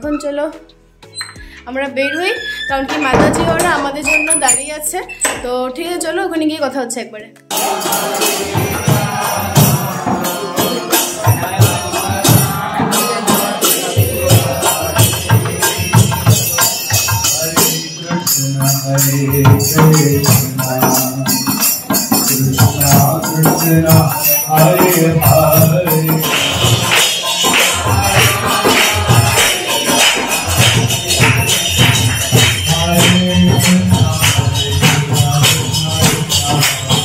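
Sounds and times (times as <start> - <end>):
hand drum beating: 2.7 - 5.6, 8.2 - 17.8, 18.4 - 37.0
hand cymbals clashing: 7.5 - 37.0.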